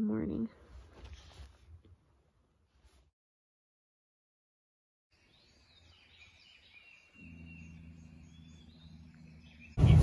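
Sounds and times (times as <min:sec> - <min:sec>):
birds chirping and whistling: 0:05.2 - 0:10.0.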